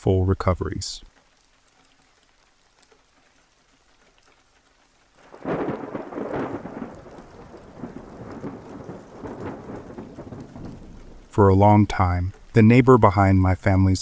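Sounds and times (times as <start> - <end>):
steady rain: 0.0 - 14.0
thunder rolling: 5.2 - 12.6.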